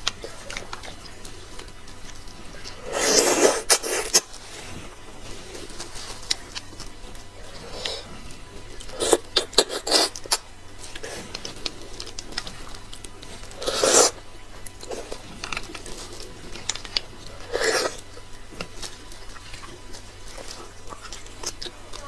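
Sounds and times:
wet chewing and mouth smacks: 0.0 - 22.0.

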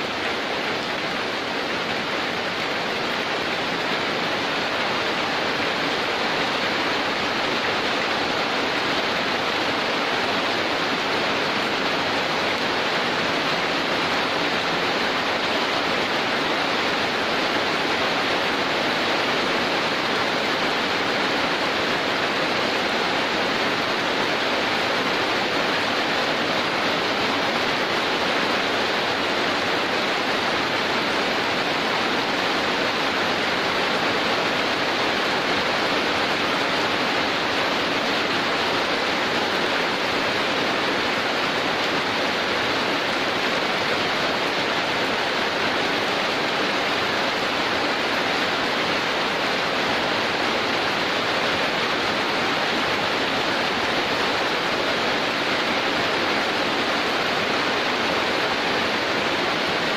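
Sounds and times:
heavy rain downpour: 0.0 - 59.9.

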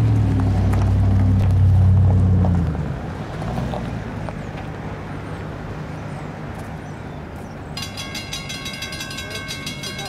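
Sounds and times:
crossing warning bell ringing: 7.8 - 10.0.

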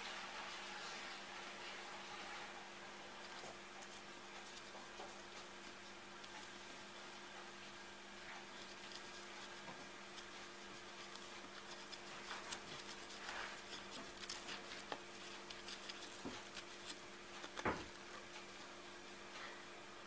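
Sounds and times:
faint steady hum: 0.0 - 20.0
hamster scratching and tapping: 2.1 - 7.6, 8.2 - 18.7.

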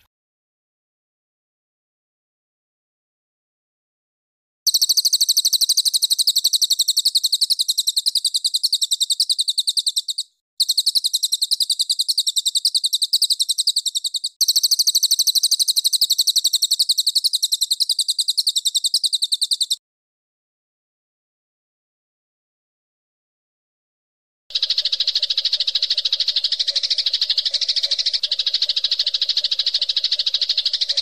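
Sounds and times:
songbird rapid repeated notes: 4.7 - 19.8, 24.5 - 31.0.

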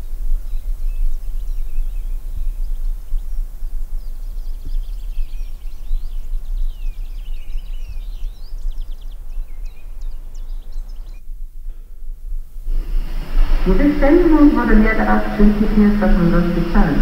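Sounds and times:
songbirds chirping and trilling: 0.4 - 11.2
steady low rumble: 11.4 - 17.0.

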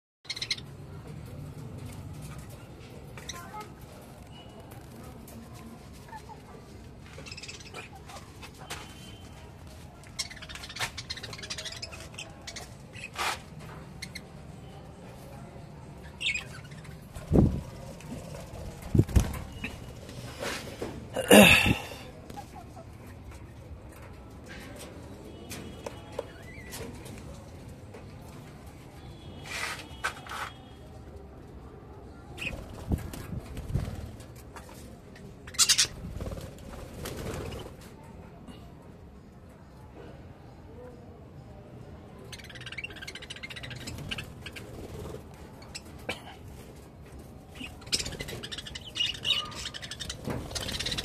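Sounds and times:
budgerigars chattering: 0.3 - 0.6, 47.6 - 51.0
wings flapping: 17.2 - 19.9, 32.4 - 34.2, 35.8 - 37.9, 50.0 - 51.0.

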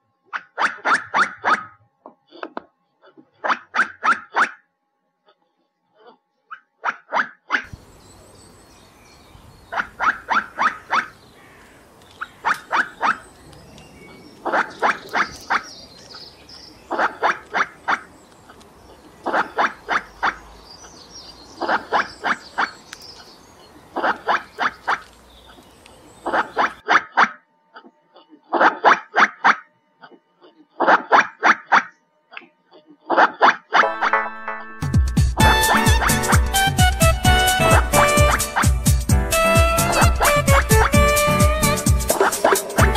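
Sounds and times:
squirrel barking: 0.3 - 1.8, 3.4 - 4.6, 9.4 - 27.4, 28.2 - 32.0, 35.4 - 42.9.

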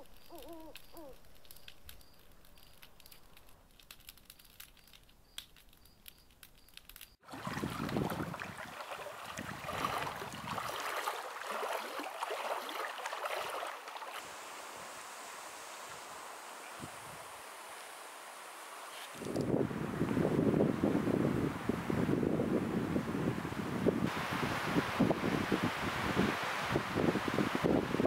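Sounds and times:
soft ticks: 0.0 - 7.2
water lapping at shore: 7.2 - 19.4
wind on microphone: 7.3 - 11.0, 16.7 - 17.5, 19.1 - 28.0.

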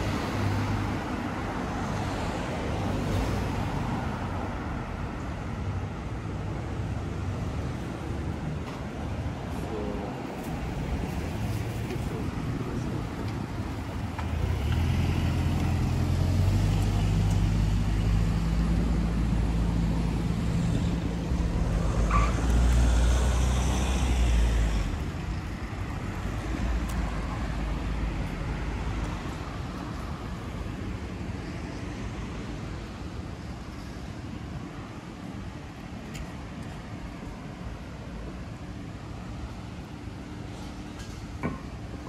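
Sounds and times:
road traffic noise: 0.0 - 42.0
vehicle engine humming: 6.0 - 31.8.

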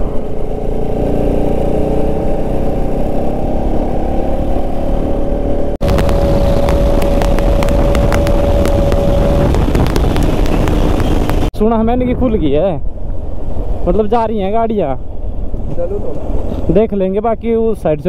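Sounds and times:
motorcycle engine cruising: 0.0 - 11.5
wind noise on microphone: 5.8 - 13.6.

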